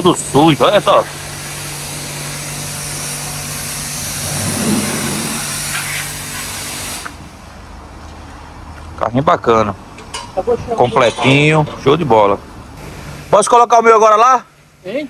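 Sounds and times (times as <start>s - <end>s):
pressure washer spraying hiss: 1.3s - 7.2s.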